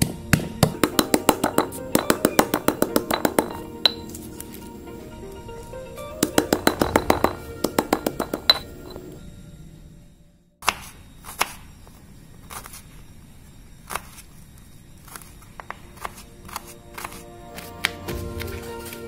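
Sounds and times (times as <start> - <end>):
stone pestle knocking in mortar: 0.0 - 4.1, 6.2 - 9.0.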